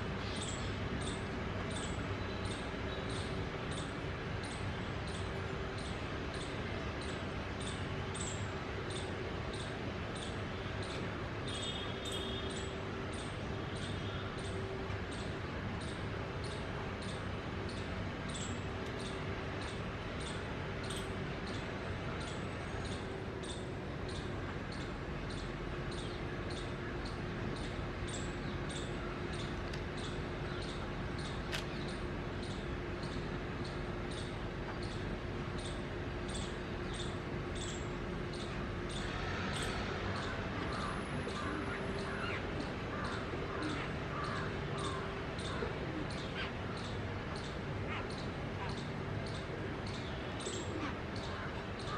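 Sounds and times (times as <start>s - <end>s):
faint steady hum: 0.0s - 51.9s.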